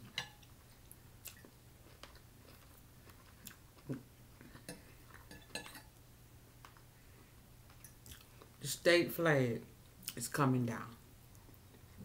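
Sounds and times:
soft chewing: 0.0 - 8.6, 11.2 - 12.0.

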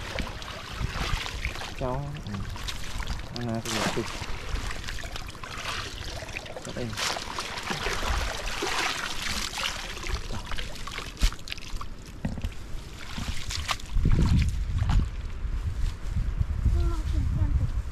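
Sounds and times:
low rumbling: 0.0 - 11.2
water splashing and sloshing: 0.0 - 15.4.

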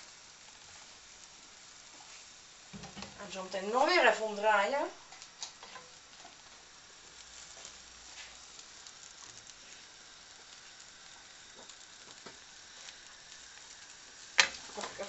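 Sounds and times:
omelet sizzling in a frying pan: 0.0 - 15.0.

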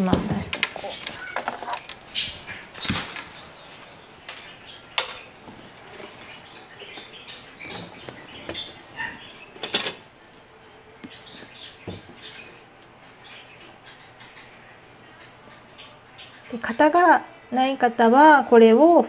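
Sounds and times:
kitchen items clattering: 0.0 - 10.2.

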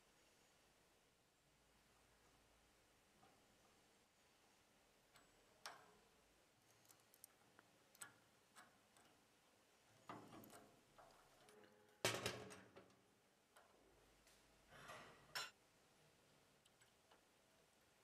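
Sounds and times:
small metal clicks and knocks: 5.0 - 15.6, 16.6 - 17.5.

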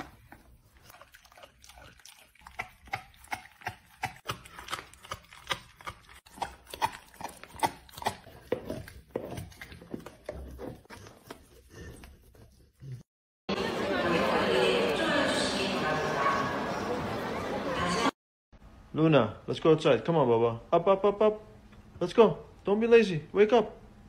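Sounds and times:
dog crunching and gnawing bone: 0.0 - 12.5.

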